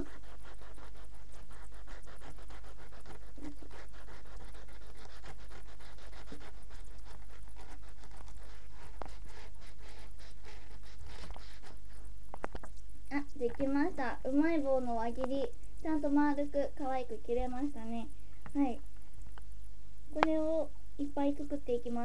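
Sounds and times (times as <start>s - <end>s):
knife sawing through corn stick: 0.0s - 12.0s.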